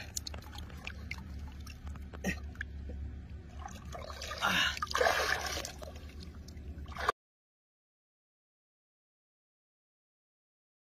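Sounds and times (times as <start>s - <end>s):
wading through muddy water: 0.0s - 7.1s.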